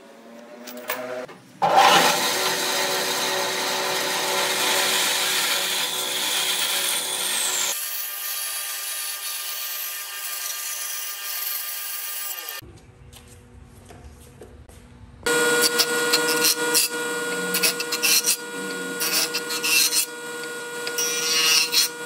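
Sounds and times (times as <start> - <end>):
band saw cutting wood: 0.9 - 12.6, 15.3 - 22.0
motor hum: 15.2 - 22.0.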